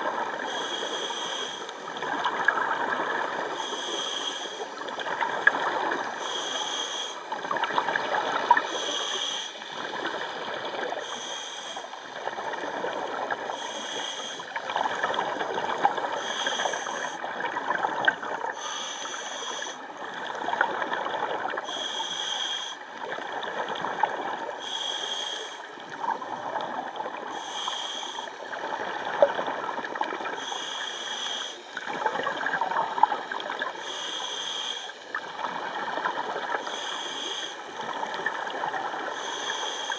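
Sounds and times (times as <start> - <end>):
diver breathing through regulator: 0.4 - 1.9, 3.5 - 4.8, 6.1 - 7.4, 8.5 - 12.1, 13.2 - 17.3, 18.0 - 20.4, 21.4 - 23.0, 24.5 - 26.3, 27.2 - 29.2, 30.3 - 32.2, 33.6 - 35.3, 36.6 - 38.0, 39.0 - 39.9
gurgling bubbles: 1.9 - 3.6, 7.3 - 8.9, 14.5 - 18.7, 19.6 - 21.7, 31.8 - 33.9.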